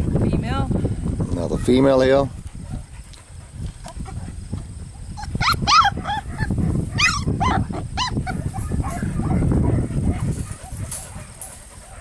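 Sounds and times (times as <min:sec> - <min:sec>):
puppies yelping and whining: 0:05.1 - 0:09.4.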